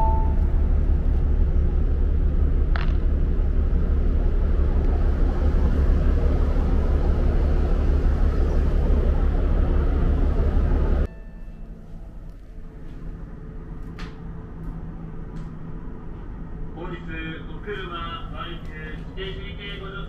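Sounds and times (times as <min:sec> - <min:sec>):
wind buffeting microphone: 0:00.0 - 0:11.1.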